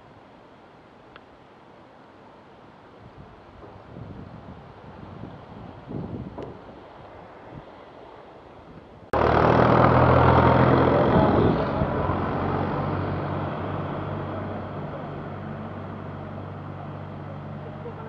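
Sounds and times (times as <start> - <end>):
tractor engine passing: 9.2 - 18.0.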